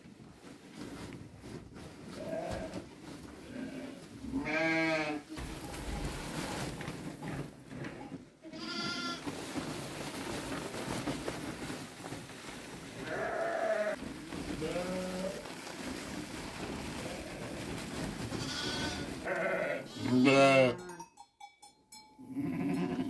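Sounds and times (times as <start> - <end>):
lambs bleating: 3.5 - 5.2, 8.5 - 9.3, 13.0 - 15.4, 18.3 - 20.9, 22.3 - 23.0.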